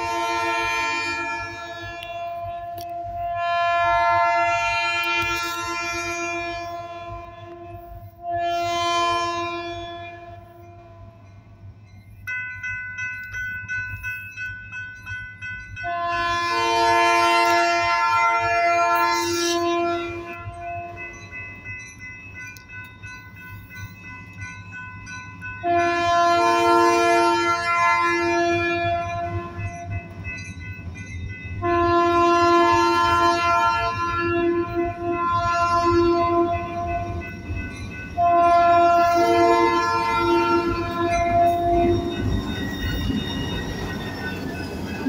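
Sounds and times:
locomotive air horn blasts: 0.0 - 11.2, 15.8 - 21.0, 25.6 - 29.7, 31.6 - 37.2, 38.2 - 42.3
crossing bell ringing: 0.0 - 45.0
locomotive rumble: 26.1 - 45.0.

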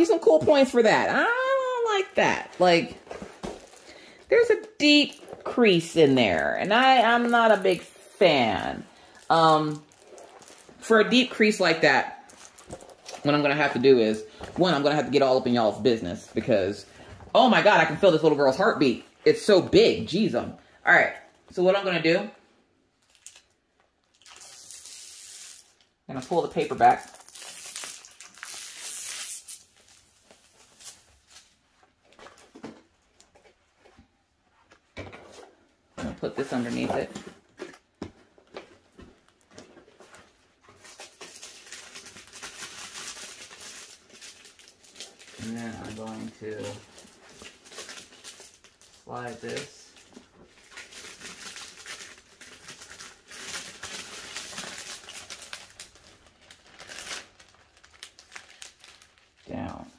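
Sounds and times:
plastic sheet crinkling: 0.0 - 15.5, 23.0 - 33.8, 36.2 - 59.9
plastic film peeling off: 23.0 - 25.9, 27.0 - 31.6, 50.6 - 59.4.

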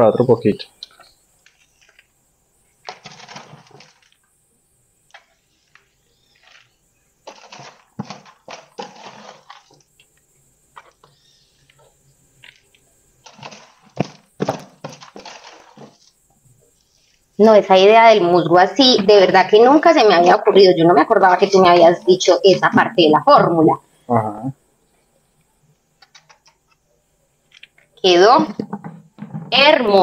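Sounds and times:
potting mix rustling and crunching: 0.8 - 4.3, 5.1 - 17.4.

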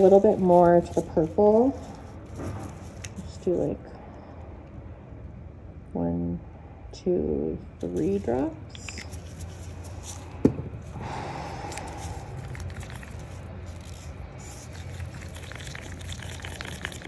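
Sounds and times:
wooden stick scraping in a cup: 11.8 - 17.0.

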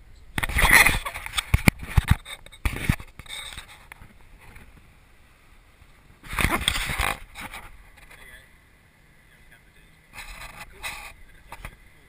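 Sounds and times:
camera handling noise: 6.3 - 7.7.

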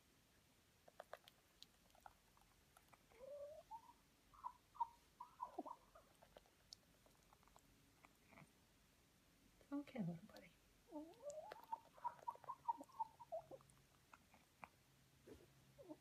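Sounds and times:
rooster clucking softly: 0.8 - 8.5, 10.9 - 16.0.

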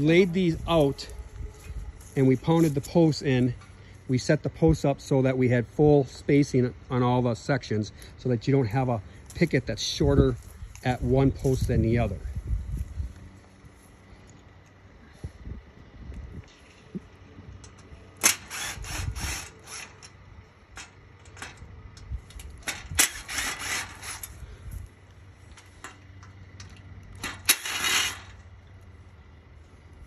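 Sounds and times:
cordless drill running: 18.3 - 20.0.

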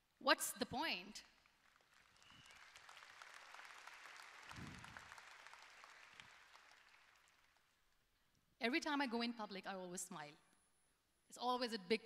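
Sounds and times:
faint audience applause: 1.5 - 7.8.

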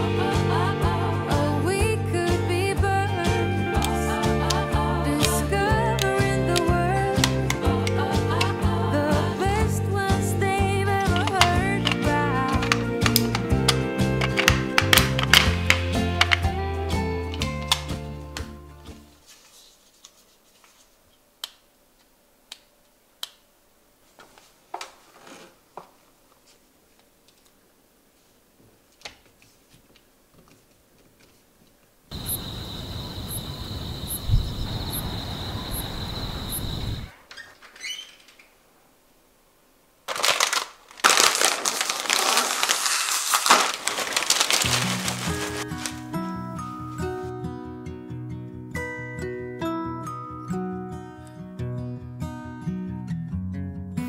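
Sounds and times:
background music: 0.0 - 19.2, 44.2 - 54.0
soft handling sounds: 19.1 - 21.3, 24.0 - 32.0, 40.1 - 47.3
plastic snack bag crinkling: 40.0 - 46.2
snacks pouring into a bowl: 40.1 - 46.2.

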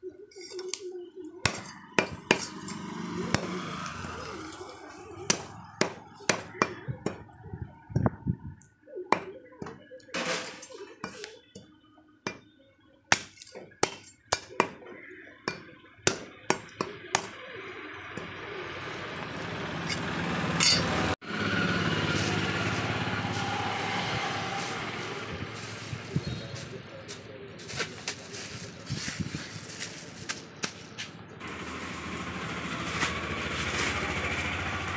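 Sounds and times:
cleaver chopping on wooden block: 1.4 - 2.6, 5.3 - 7.3.

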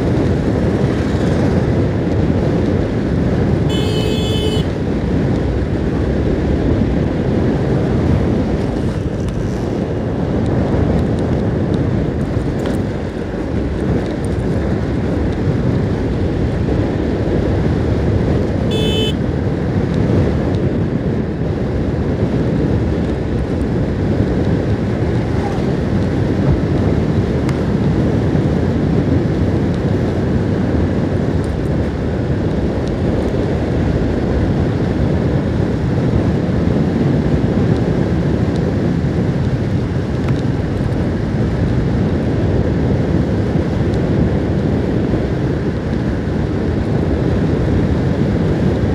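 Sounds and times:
motorcycle engine: 0.0 - 19.4
road noise: 0.0 - 48.9
wind buffeting microphone: 0.0 - 48.9
short beep: 3.7 - 4.7.

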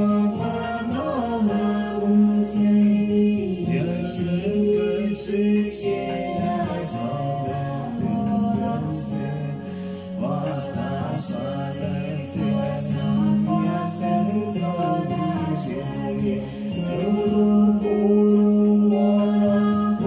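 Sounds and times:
instrumental accompaniment: 0.0 - 20.0
person singing: 0.0 - 20.0.

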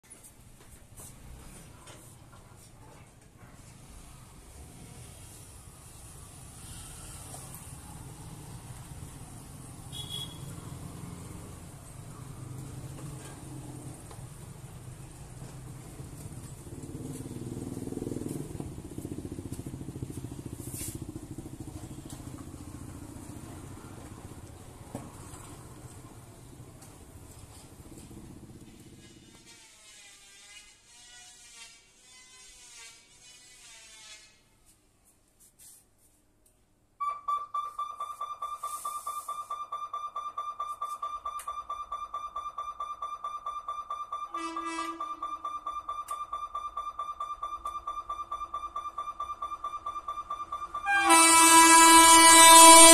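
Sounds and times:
motorcycle engine passing: 3.6 - 29.5
locomotive horn blast: 9.9 - 10.9, 44.4 - 45.2, 50.8 - 52.9
rapid high warning beeps: 37.0 - 51.1.

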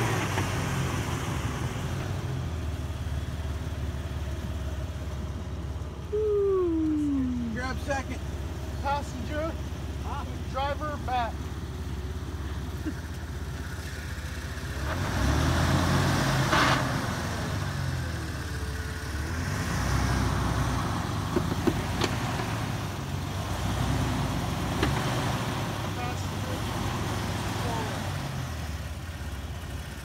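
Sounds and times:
sharp knocks and clicks: 21.3 - 22.5.

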